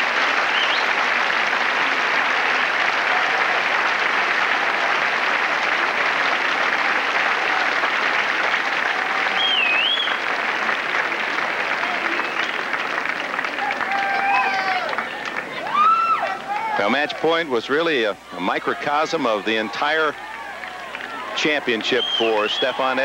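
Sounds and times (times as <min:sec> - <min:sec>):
crowd applauding: 0:00.0 - 0:23.0
wavering whistle: 0:09.3 - 0:10.2, 0:22.0 - 0:22.7.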